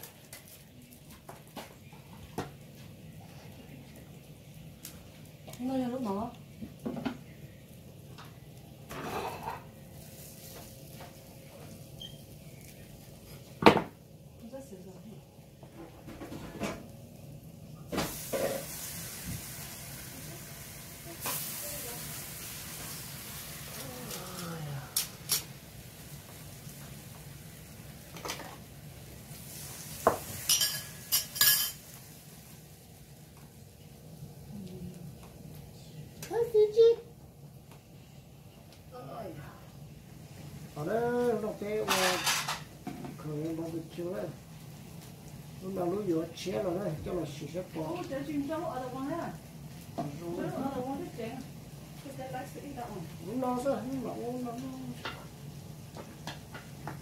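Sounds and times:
tongs and dishes clinking: 23.8s - 25.5s, 30.1s - 31.9s, 41.8s - 43.6s.

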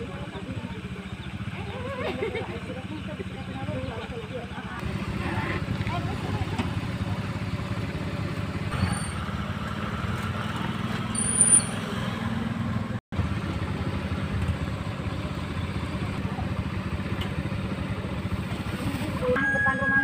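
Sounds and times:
motor scooter engine running: 0.0s - 20.0s
short high squeal: 11.1s - 11.9s.

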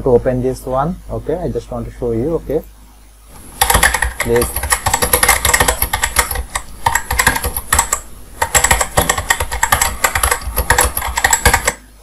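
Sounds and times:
keyboard typing clicks: 3.4s - 11.8s.

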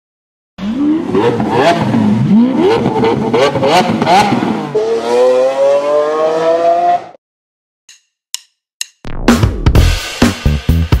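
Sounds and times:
sports car engine revving: 0.6s - 7.2s.

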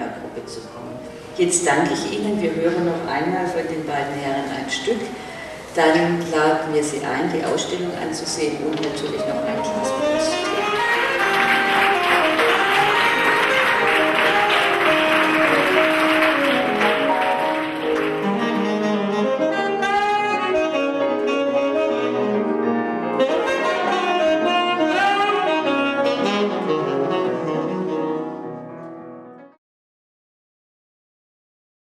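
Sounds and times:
instrumental duo music: 7.4s - 29.6s.

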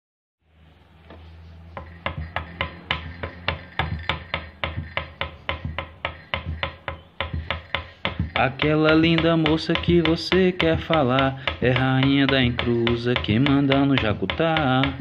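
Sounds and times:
hand drum strikes: 2.1s - 11.1s.

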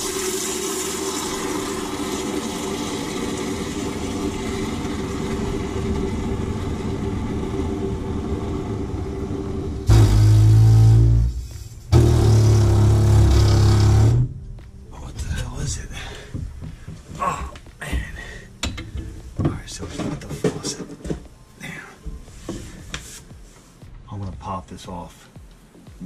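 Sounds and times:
water running through pipes: 0.0s - 14.4s
pipes deep buzzing rumble: 0.4s - 14.6s.

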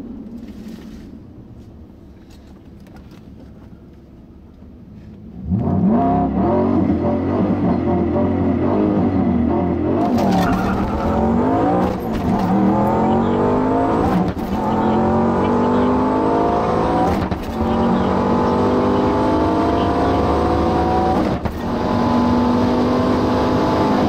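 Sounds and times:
car engine accelerating: 5.3s - 24.0s.

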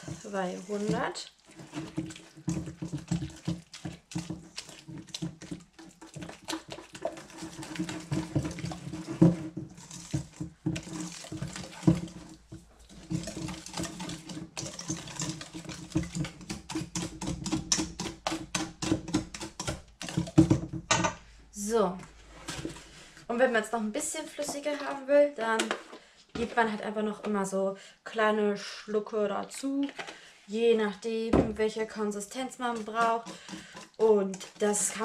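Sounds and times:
whisk beating batter in metal bowl: 0.0s - 20.7s, 32.2s - 35.0s.

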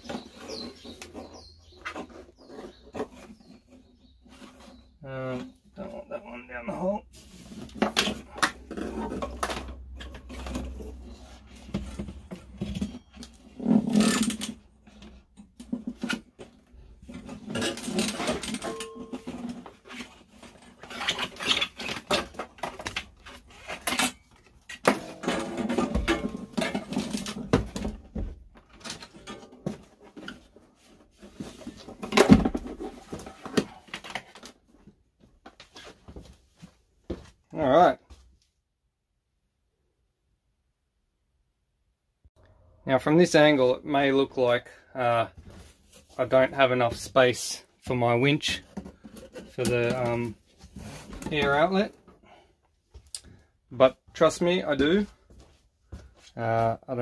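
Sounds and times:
metal pipes scraping and rattling: 7.2s - 28.0s, 28.7s - 34.4s.

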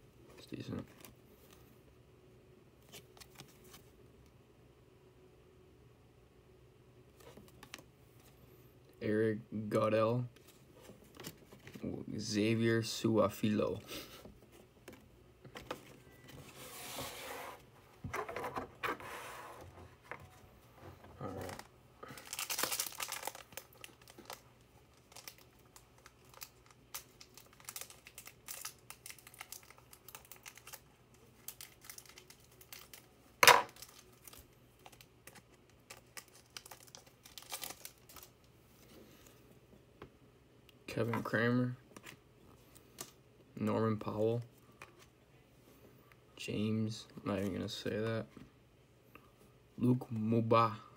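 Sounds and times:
foil wrapper tearing and crinkling: 22.0s - 33.1s, 33.7s - 38.3s.

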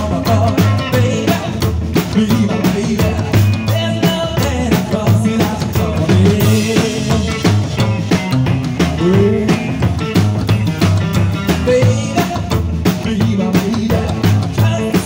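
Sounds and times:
upright bass plucked and slapped: 0.0s - 14.9s
drum beat: 0.0s - 15.0s.

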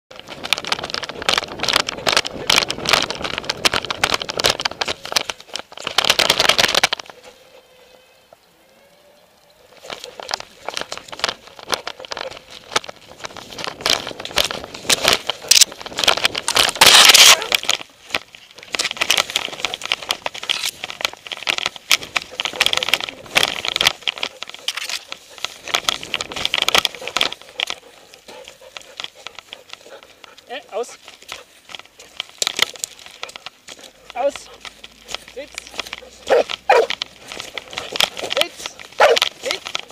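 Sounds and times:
camera rubbing and knocking: 0.1s - 7.4s, 9.7s - 39.9s
camera rustling and crackling clicks: 0.1s - 8.5s, 9.4s - 39.9s
wind on microphone: 10.5s - 17.6s.

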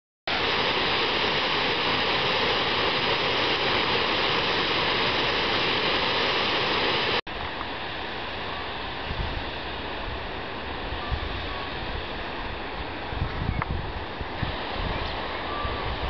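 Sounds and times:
water rushing down spillway: 0.3s - 16.0s.

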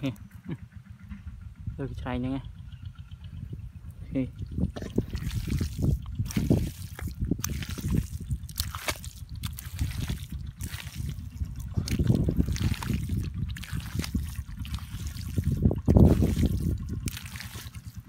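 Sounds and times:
wet mud squelching: 4.6s - 18.0s
wet smacks: 4.9s - 17.9s.

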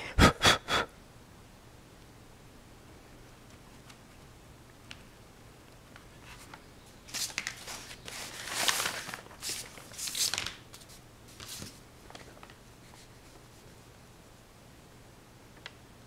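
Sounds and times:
rustling and scraping handling noise: 5.9s - 13.8s.

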